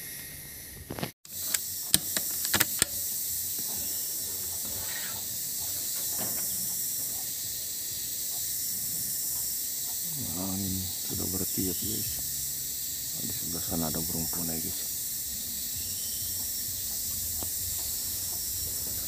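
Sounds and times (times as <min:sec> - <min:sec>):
high-pitched hiss: 0:00.0 - 0:19.0
sharp clicks: 0:01.0 - 0:03.2.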